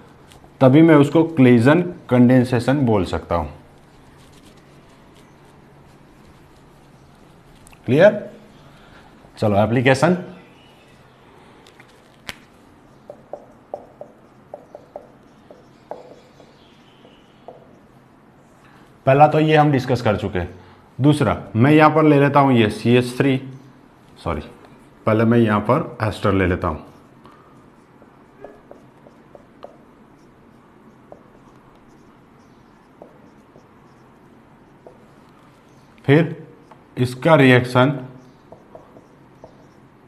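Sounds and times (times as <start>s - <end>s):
marker squeaking on whiteboard: 13.0s - 17.9s, 26.9s - 36.0s, 38.2s - 40.0s.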